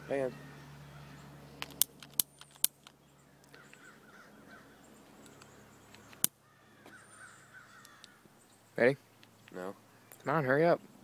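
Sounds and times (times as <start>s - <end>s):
crows cawing faintly: 0.0s - 1.8s, 3.2s - 10.5s
sharp clicks: 1.6s - 3.8s, 5.2s - 6.4s, 7.8s - 8.2s.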